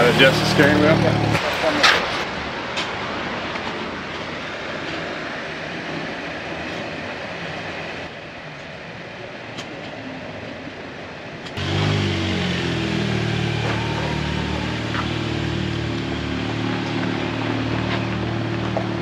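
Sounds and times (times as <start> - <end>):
car engine starting and idling: 0.0 - 2.2, 11.6 - 19.0.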